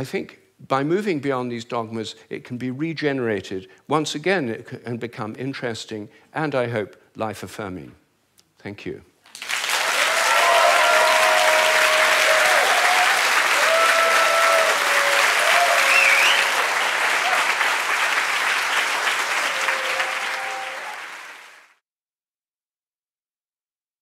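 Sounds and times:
audience applauding: 9.3s - 21.8s.

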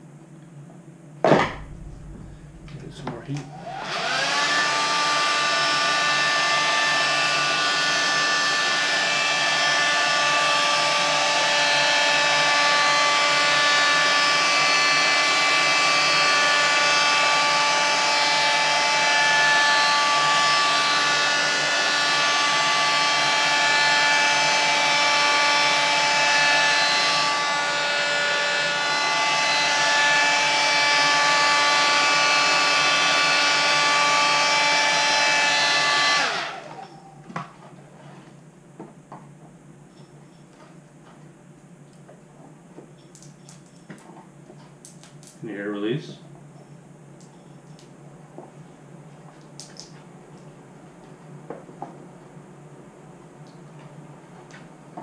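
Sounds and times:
heat gun fan whining and humming: 1.4s - 37.6s.

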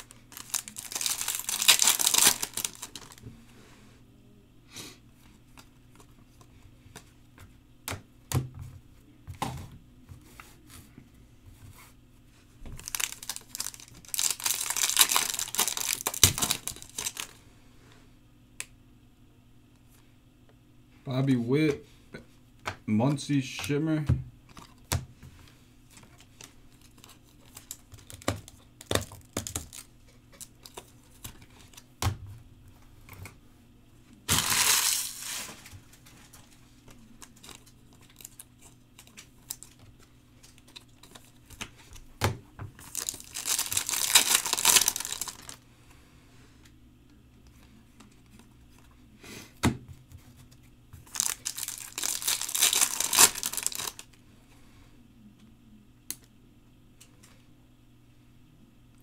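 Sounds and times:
foil wrappers ripping and crinkling: 0.0s - 3.2s, 12.8s - 17.4s, 26.7s - 31.8s, 34.3s - 41.6s, 42.8s - 45.6s, 51.0s - 54.1s.

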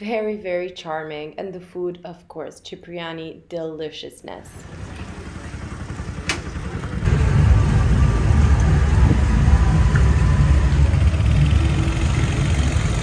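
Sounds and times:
vehicle ride rumble: 4.6s - 13.0s.

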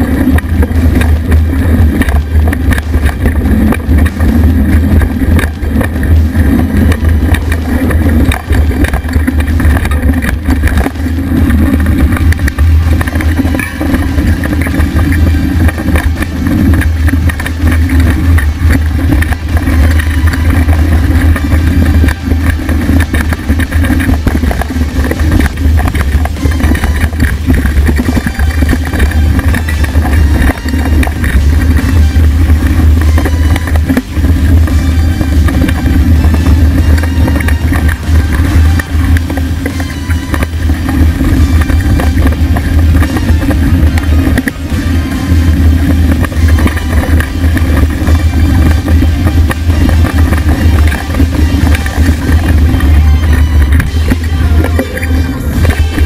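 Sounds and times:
bike rattling over bumps: 0.0s - 56.0s
bike tyre rolling on dirt: 0.0s - 56.0s
wind rumble on microphone: 0.0s - 56.0s.

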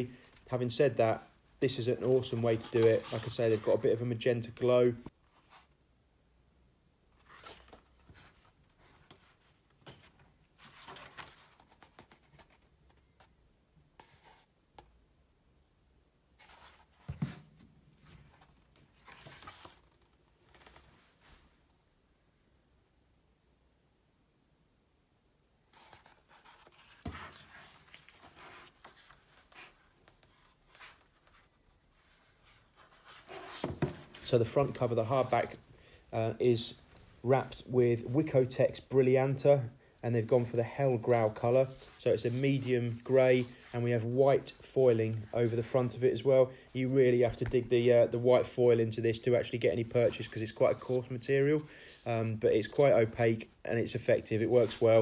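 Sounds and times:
book pages rustling: 2.0s - 3.9s, 7.2s - 13.4s, 16.4s - 21.6s, 25.7s - 35.6s.

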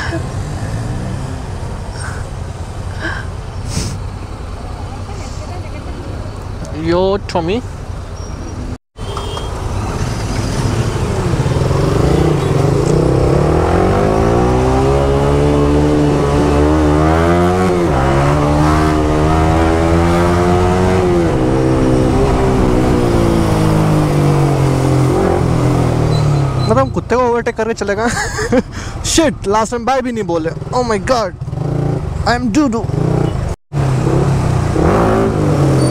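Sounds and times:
wind and road noise: 0.0s - 35.9s
motorcycle engine accelerating: 9.8s - 26.8s.

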